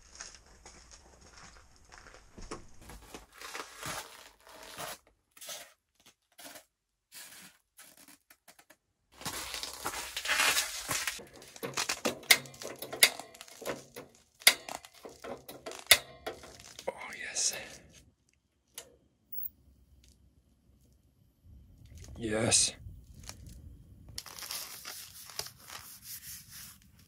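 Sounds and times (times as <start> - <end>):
crunching footsteps: 0.0 - 8.2, 9.2 - 18.0, 23.0 - 26.2
tent fabric rustling: 9.2 - 12.0, 24.2 - 27.0
sharp clicks and knocks: 11.2 - 16.8.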